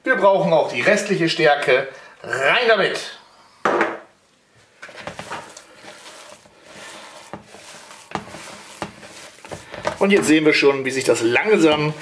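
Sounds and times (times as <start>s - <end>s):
hands kneading meat paste: 4.6s - 12.0s.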